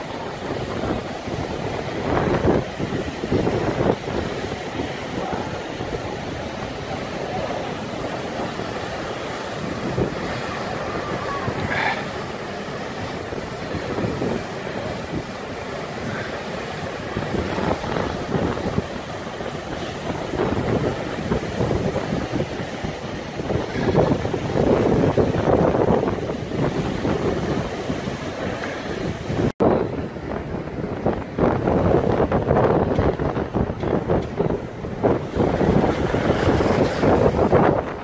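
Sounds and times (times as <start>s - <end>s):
heavy surf breaking against wall: 0.0s - 38.0s
wind buffeting microphone: 0.0s - 38.0s.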